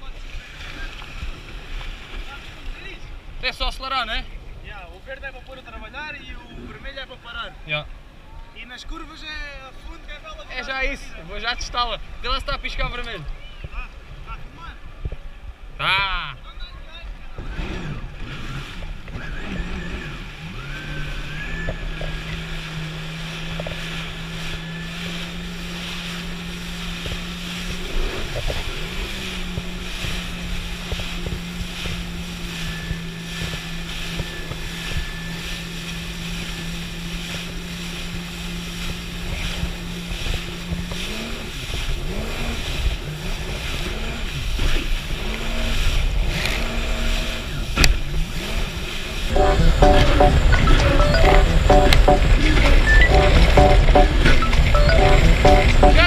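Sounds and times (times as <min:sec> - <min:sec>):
wind: 0:00.0 - 0:56.0
jet ski engine running: 0:17.0 - 0:56.0.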